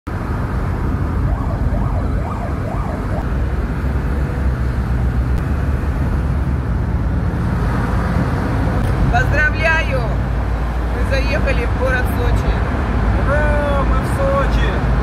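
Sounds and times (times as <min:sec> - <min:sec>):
car cabin road and engine noise: 0:00.1 - 0:15.0
faint siren rising and falling: 0:00.6 - 0:03.4.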